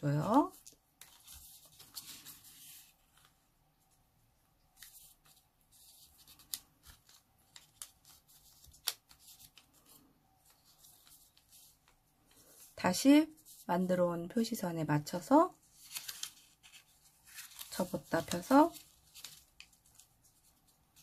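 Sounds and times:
paper rustling while folded: 0.0 - 13.8, 15.2 - 21.0
crisp paper crease clicks: 6.0 - 12.0, 15.7 - 21.0.

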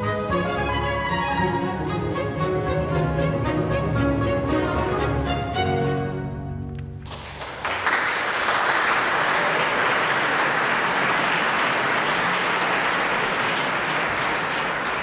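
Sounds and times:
audience applause: 7.0 - 15.0.

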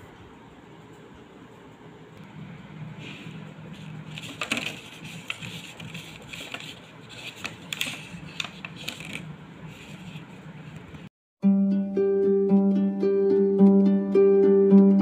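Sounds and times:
plastic crackling and clicking: 4.1 - 9.3.

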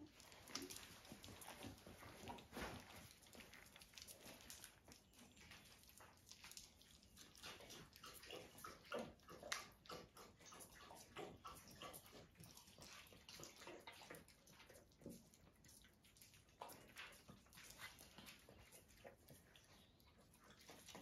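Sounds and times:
puppies lapping wet food: 0.0 - 21.0.

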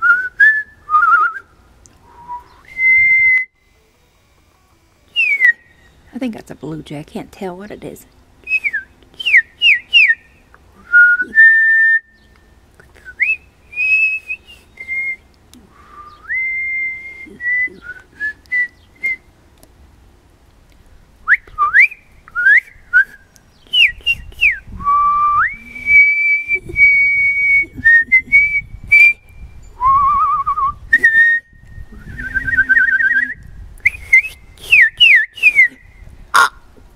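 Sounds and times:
woman whistling bird-like calls: 2.1 - 3.5, 5.1 - 6.0, 8.4 - 10.2, 10.8 - 12.2, 13.0 - 19.2, 21.3 - 35.9.

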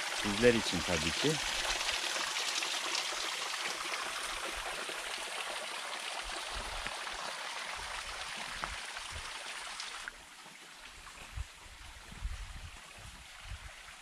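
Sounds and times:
waterfall splashing into pool: 0.0 - 10.1.

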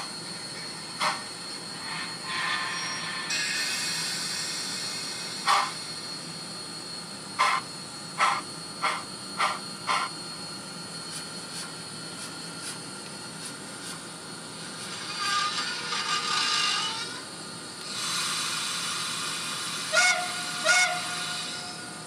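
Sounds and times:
steady hiss of steam: 1.0 - 6.2, 17.9 - 22.0.

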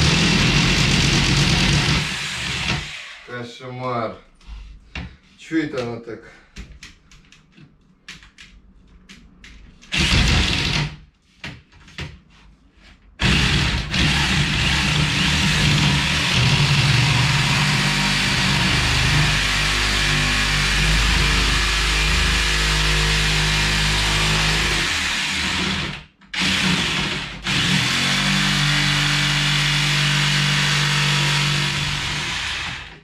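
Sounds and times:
electric jigsaw sawing: 0.0 - 3.3, 9.9 - 10.9, 13.2 - 33.0.

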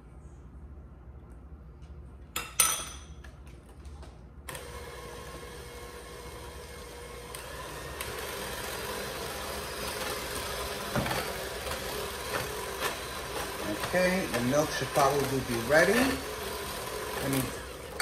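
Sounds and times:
electric hand mixer running: 4.5 - 18.0.

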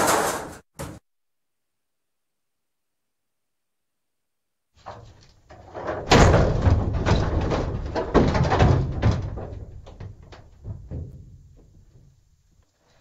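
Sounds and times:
banging on metal dumpster: 5.6 - 11.6.

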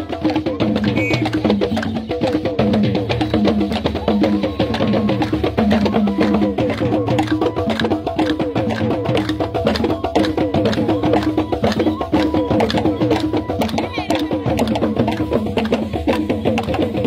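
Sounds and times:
fast dense drumming: 0.0 - 17.0.

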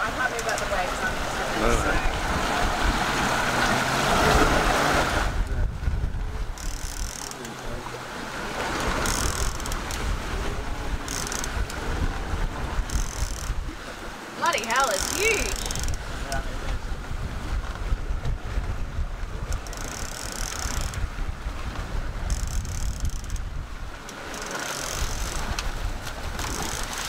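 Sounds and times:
water rushing past hull: 0.0 - 27.0
wind buffeting microphone: 0.0 - 27.0
person calling out: 14.4 - 15.7.

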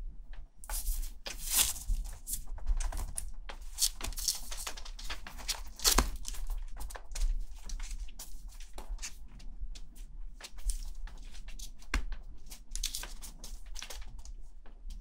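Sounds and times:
kitten claws scratching wooden floor: 0.6 - 9.2, 12.4 - 14.0.

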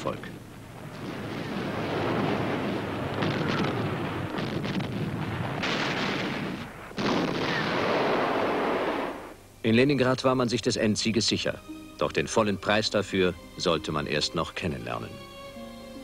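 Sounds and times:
explosions: 0.7 - 9.4
gunfire: 1.0 - 9.3.

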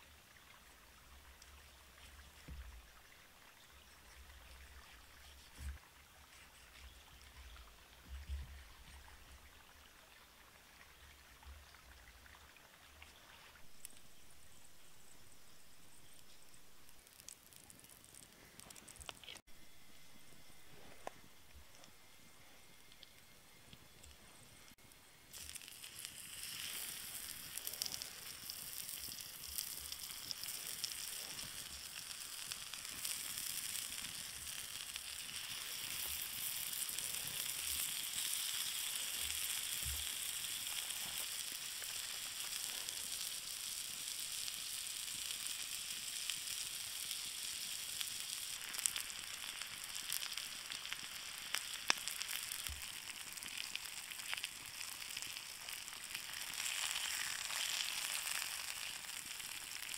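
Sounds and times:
pork sizzling on hot stone: 13.6 - 19.5, 24.6 - 59.9.

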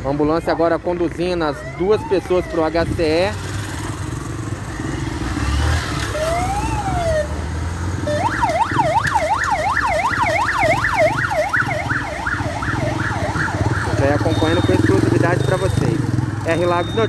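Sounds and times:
vehicle engines running: 0.0 - 17.0
ambulance siren wailing: 0.4 - 3.3, 6.0 - 7.4, 8.0 - 17.0.

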